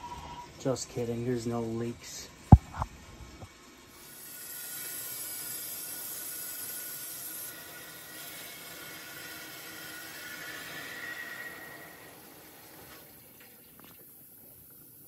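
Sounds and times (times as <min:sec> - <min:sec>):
water hissing through pipes: 0:03.9 - 0:15.0.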